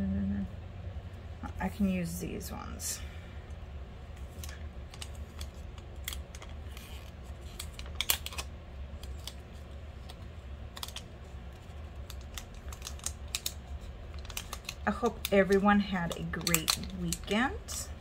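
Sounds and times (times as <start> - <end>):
plastic packets crinkling: 4.2 - 18.0.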